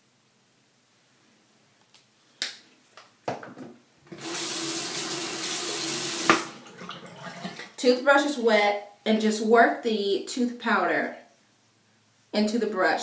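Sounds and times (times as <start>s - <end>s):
tap running into sink: 4.1s - 7.7s.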